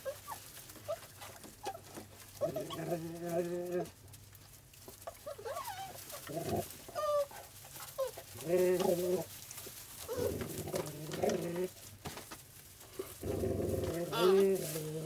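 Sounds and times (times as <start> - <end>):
puppies whimpering and squeaking: 0.0 - 3.4, 5.0 - 8.4, 10.0 - 10.6, 14.0 - 14.8.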